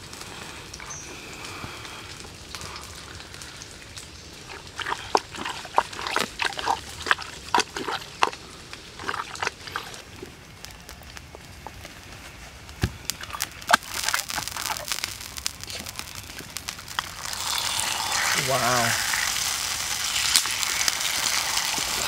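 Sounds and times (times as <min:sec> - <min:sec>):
wet squelching intestine: 0:04.3 - 0:10.3, 0:13.2 - 0:22.0.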